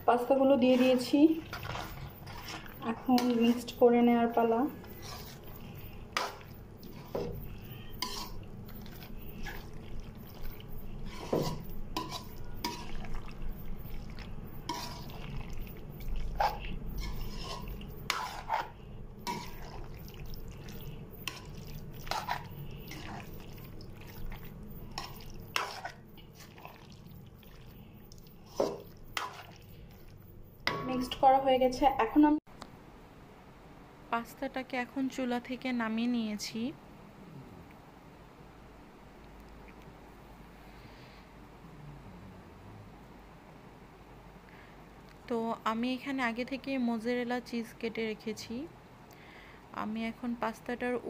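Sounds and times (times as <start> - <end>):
low steady hum: 0.0 - 51.0
spoon scraping metal pan: 0.4 - 26.8, 28.4 - 30.1.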